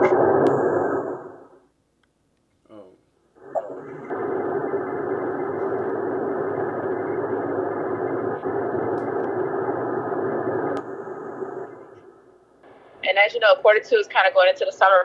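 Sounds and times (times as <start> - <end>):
steady rushing noise: 3.4 - 13.3.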